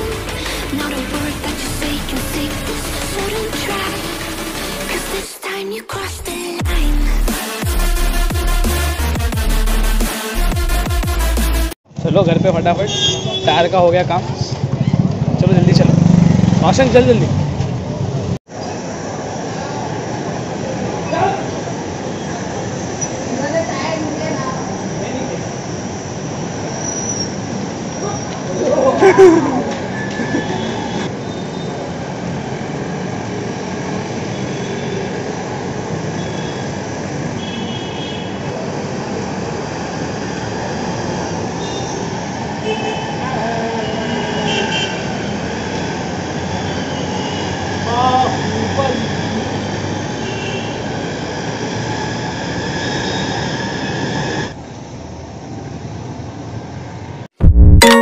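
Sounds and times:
music: 0:00.0 - 0:11.8
passing vehicles rumbling: 0:11.9 - 0:37.4.

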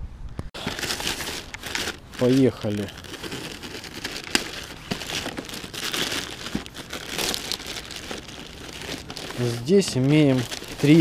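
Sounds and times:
plastic bag tearing and crinkling: 0:00.6 - 0:11.0.

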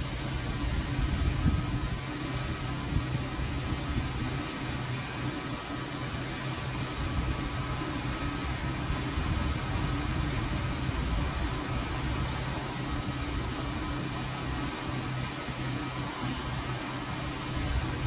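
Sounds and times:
low mechanical hum and rumble: 0:00.0 - 0:18.0.

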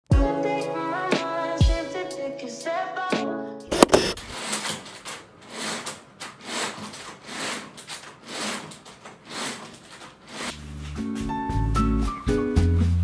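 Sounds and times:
soft rubbing and rustling: 0:03.7 - 0:10.6.

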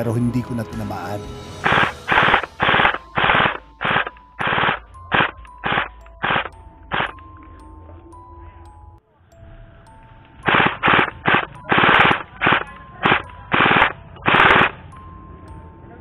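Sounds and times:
airsoft rifle firing bursts: 0:10.5 - 0:14.7.

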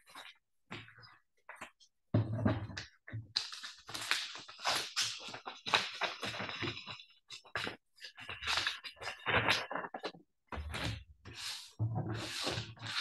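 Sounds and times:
paper rustling: 0:04.0 - 0:10.1, 0:10.7 - 0:13.0.

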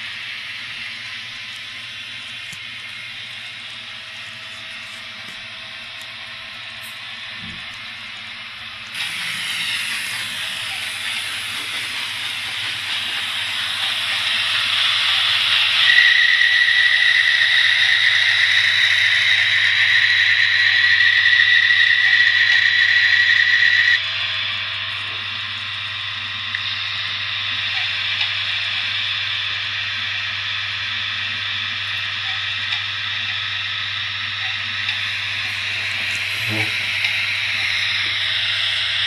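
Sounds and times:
high whistle-like tone: 0:14.6 - 0:24.0
loudspeaker hiss: 0:35.0 - 0:37.5.

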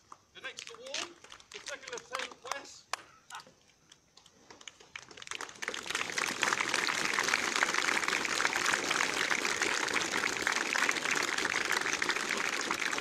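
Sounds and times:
crowd applauding: 0:04.6 - 0:13.0.

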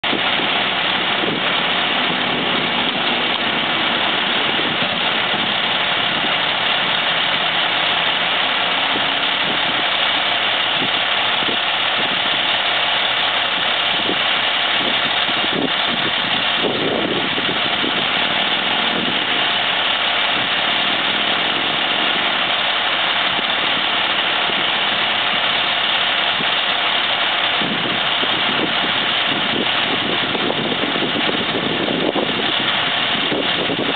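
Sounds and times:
constant high hiss: 0:00.0 - 0:33.9
diesel engine idling: 0:00.0 - 0:33.9.

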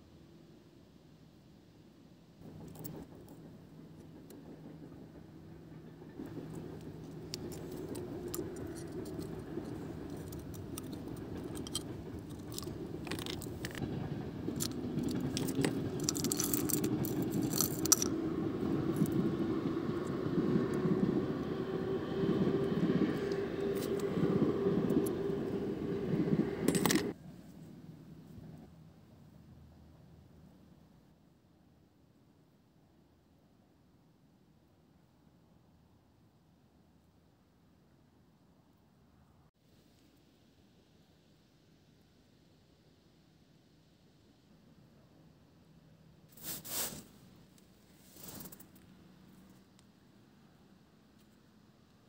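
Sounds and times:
engine hum: 0:02.4 - 0:27.2
small metal tools clinking: 0:07.2 - 0:13.9, 0:14.6 - 0:18.2.

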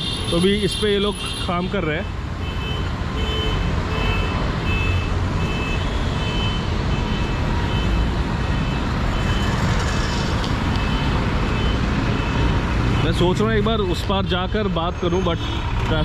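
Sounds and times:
heavy road traffic rumble: 0:00.0 - 0:16.0.

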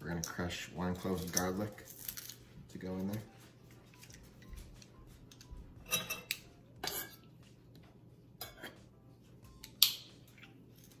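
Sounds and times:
knife scraping metal: 0:05.9 - 0:07.2.

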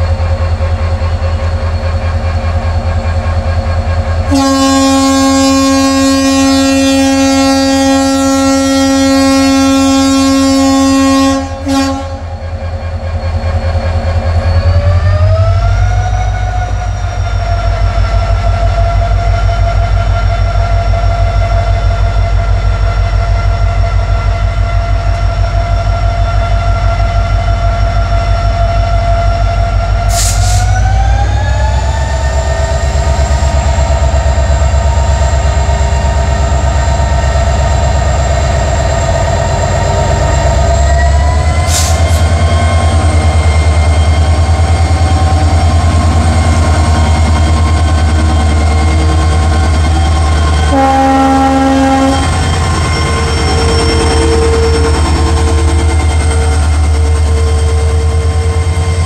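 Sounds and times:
sharp hisses: 0:30.1 - 0:30.7, 0:41.6 - 0:42.2.

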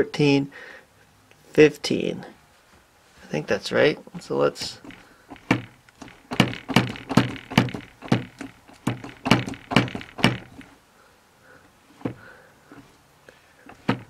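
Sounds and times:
hammer tapping center punch: 0:04.8 - 0:10.7.

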